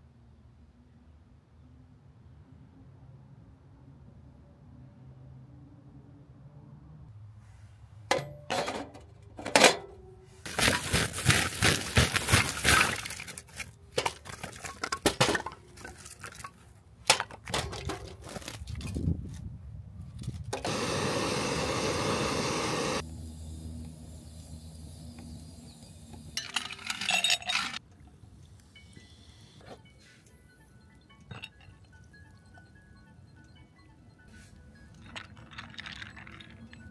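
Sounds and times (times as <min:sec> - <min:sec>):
metal plates clinking and scraping: 0:08.1 - 0:10.0, 0:26.4 - 0:27.8
steady hiss: 0:20.7 - 0:26.4.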